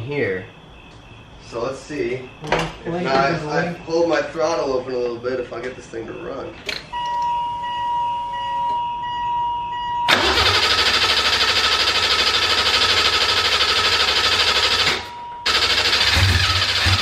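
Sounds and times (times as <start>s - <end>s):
engine starter cranking: 10.1s - 17.0s.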